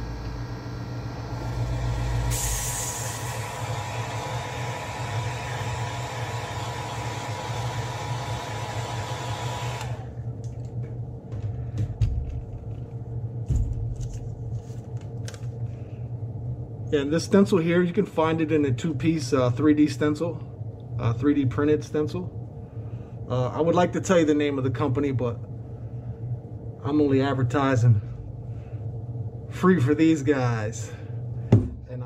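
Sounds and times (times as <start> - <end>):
compressor humming: 0.0 - 32.0
airbrush air hiss: 2.0 - 9.1.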